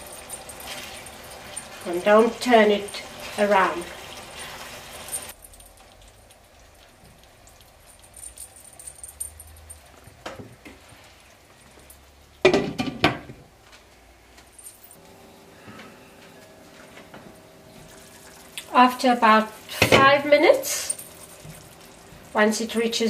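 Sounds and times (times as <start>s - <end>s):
light clinks: 5.0s - 6.4s, 7.5s - 10.3s.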